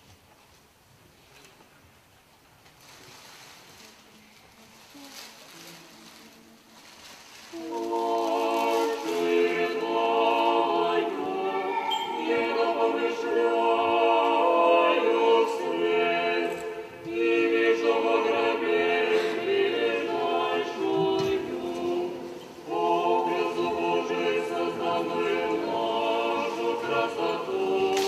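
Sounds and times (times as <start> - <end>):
choir singing unaccompanied chant: 7.5 - 28.0.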